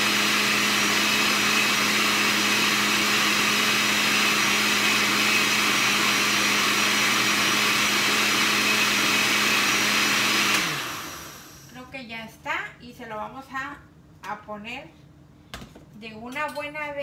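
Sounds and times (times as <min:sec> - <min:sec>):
blender motor running: 0:00.0 - 0:11.8.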